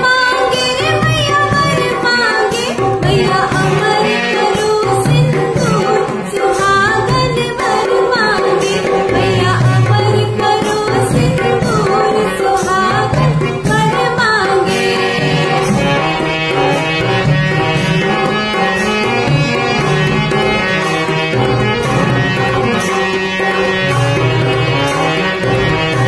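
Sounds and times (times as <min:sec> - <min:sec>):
woman singing a folk song: 0:00.0 - 0:14.7
music with a drum rhythm: 0:00.0 - 0:26.0.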